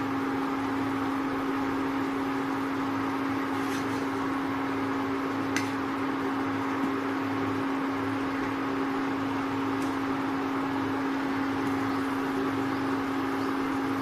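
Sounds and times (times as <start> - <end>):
cooktop electric hum and fan: 0.0 - 14.0.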